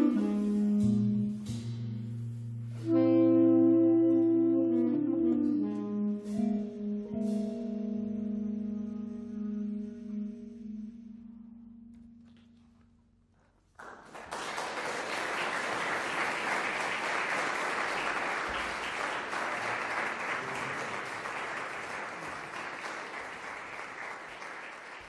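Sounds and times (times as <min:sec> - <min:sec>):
audience applauding: 0:13.6 - 0:25.0.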